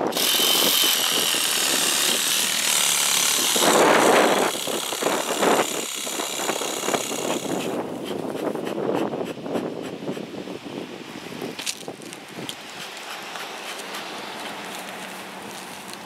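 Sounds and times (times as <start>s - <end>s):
leaf blower running: 0.0s - 7.8s
air blasting grass and dirt: 0.0s - 16.0s.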